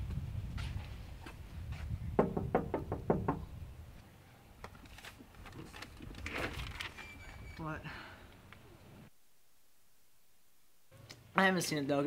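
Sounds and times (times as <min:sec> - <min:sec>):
knuckles knocking on door: 0:02.2 - 0:03.5.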